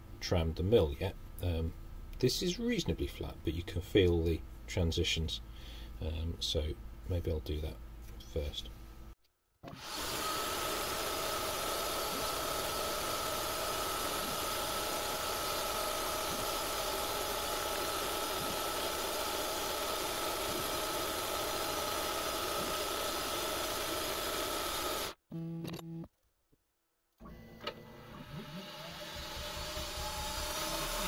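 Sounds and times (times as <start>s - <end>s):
milling machine spindle whine: 28.4s - 31.0s.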